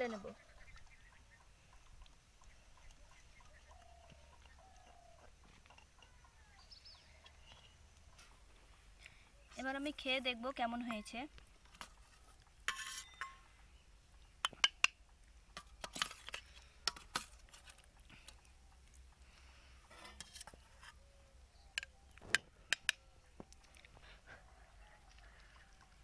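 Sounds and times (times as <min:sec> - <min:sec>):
spoon clinking on steel bowl: 0:12.7 - 0:13.4.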